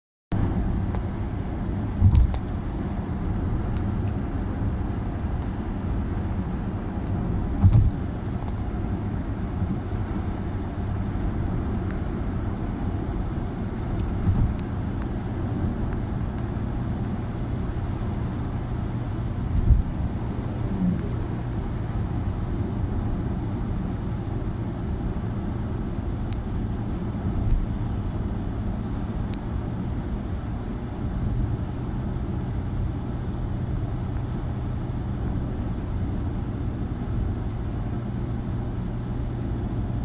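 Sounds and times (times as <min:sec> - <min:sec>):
road and engine rumble in car: 0:00.3 - 0:40.0
short thumps: 0:07.5 - 0:08.6, 0:14.2 - 0:14.6.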